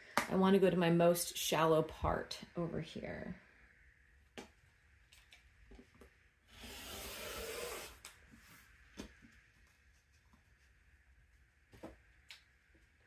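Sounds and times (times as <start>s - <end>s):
rotary cutter cutting fabric: 6.5s - 8.0s.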